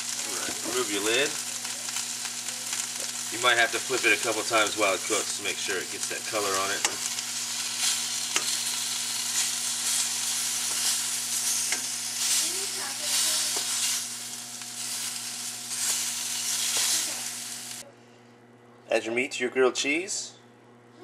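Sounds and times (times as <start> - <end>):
ham sizzling in frying pan: 0.0 - 17.8
tongs clicking against pan: 6.8 - 7.2, 7.8 - 8.7, 10.6 - 12.0.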